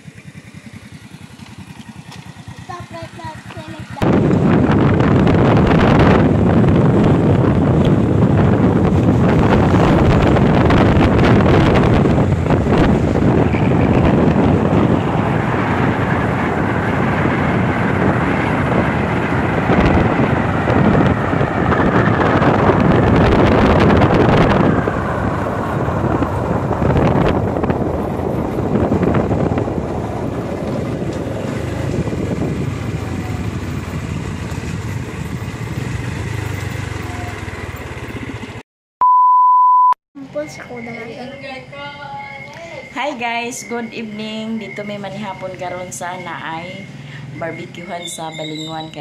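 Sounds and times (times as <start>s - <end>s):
vehicle running: 0.0s - 38.6s, 40.2s - 49.0s
wind rushing over microphone: 2.7s - 38.6s, 41.8s - 49.0s
steady test tone beep: 39.0s - 46.8s.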